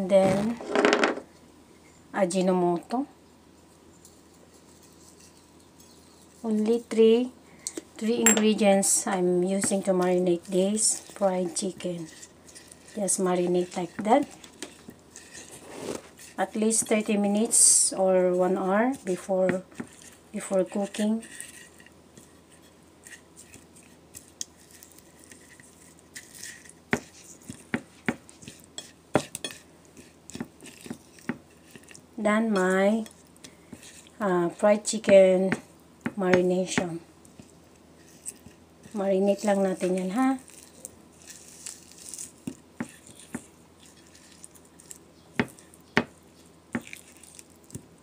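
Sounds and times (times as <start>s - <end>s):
soft wet squishes: 37.2s - 48.0s
wet squishing of chicken by hand: 46.8s - 48.0s.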